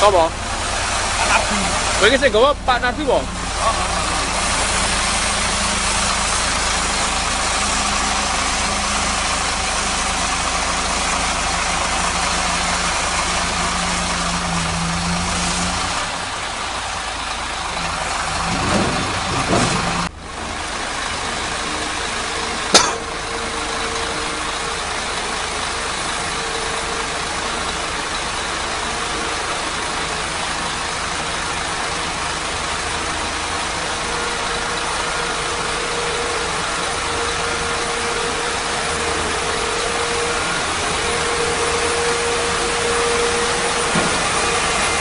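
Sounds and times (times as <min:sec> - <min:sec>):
diesel truck engine running: 0:00.0 - 0:45.0.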